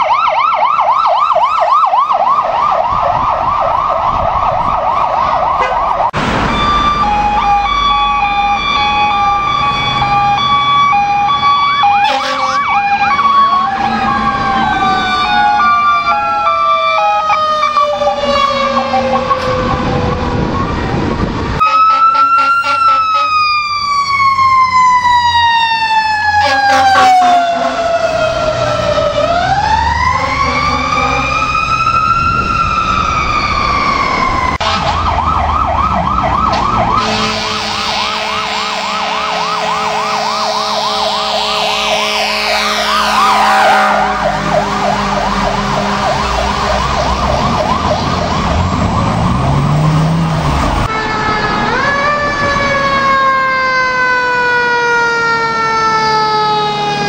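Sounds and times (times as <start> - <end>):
electronic siren yelping: 0.0 - 57.0
horn blasts: 5.6 - 7.3, 12.0 - 12.8, 21.6 - 23.4, 26.4 - 27.9, 34.6 - 35.1, 37.0 - 46.8.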